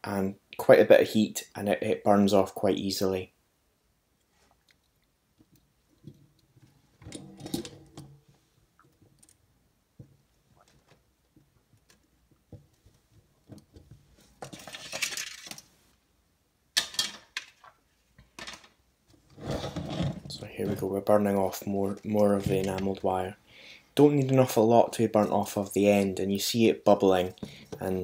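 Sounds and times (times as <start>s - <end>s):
rubbing sliding sound: 19.3s - 21.0s.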